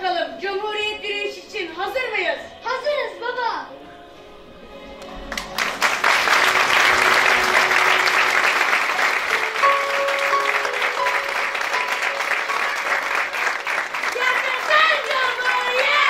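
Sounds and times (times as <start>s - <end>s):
audience applauding: 5.0s - 16.0s.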